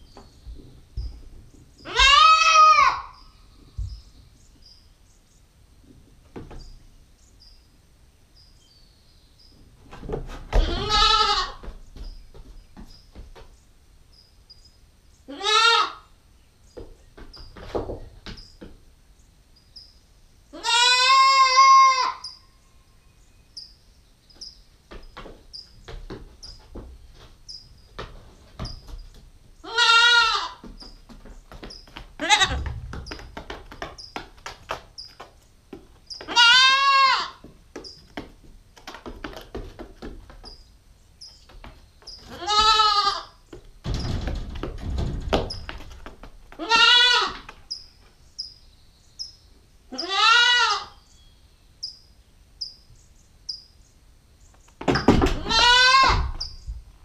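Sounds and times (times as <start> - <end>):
goat kid bleating loudly: 1.9 - 3.2, 10.6 - 11.6, 15.3 - 16.1, 20.5 - 22.3, 29.6 - 30.6, 32.2 - 32.7, 36.3 - 37.4, 42.3 - 43.4, 46.6 - 47.5, 49.9 - 51.0, 55.4 - 56.4.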